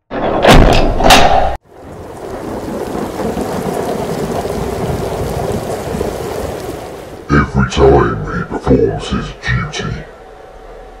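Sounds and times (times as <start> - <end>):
thunder cracks: 1.6 - 7.4
steady rain: 1.6 - 7.5.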